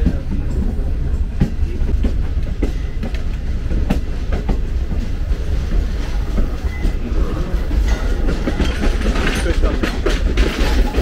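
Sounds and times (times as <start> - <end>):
train carriage rumbling: 0.0 - 11.0
wheels clicking over rails: 0.0 - 11.0.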